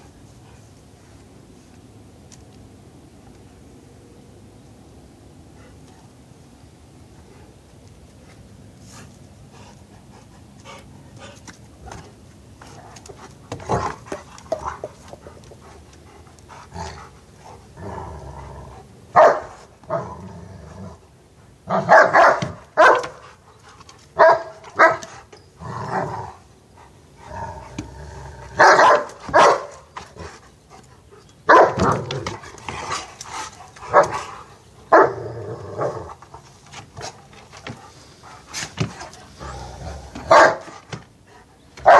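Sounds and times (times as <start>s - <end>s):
dogs play growling: 9.0s - 21.9s, 23.6s - 31.1s, 31.8s - 41.4s
dogs barking sharply: 19.1s - 20.0s, 21.7s - 23.3s, 24.2s - 25.2s, 28.6s - 29.9s, 31.5s - 33.0s, 33.8s - 34.3s, 40.2s - 41.0s.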